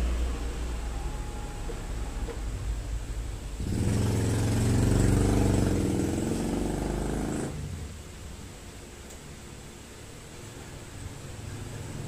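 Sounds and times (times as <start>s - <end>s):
vehicle engine passing by: 3.6s - 7.8s.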